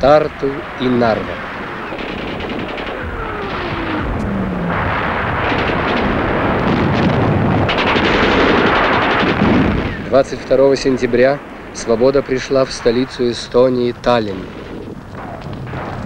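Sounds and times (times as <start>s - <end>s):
din of battle: 0.0s - 16.0s
submachine gun fire: 0.8s - 11.2s.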